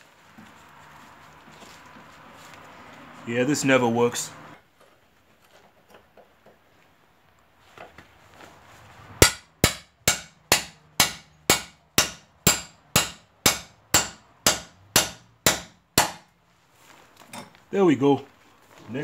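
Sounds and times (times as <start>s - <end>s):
hammer striking metal: 9.2s - 16.3s.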